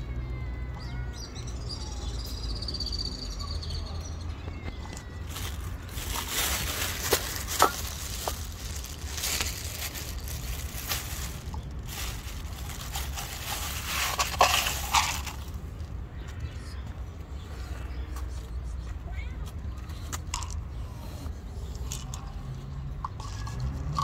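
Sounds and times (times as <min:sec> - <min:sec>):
cats crunching dry kibble: 0:04.5 - 0:16.0, 0:19.8 - 0:24.0.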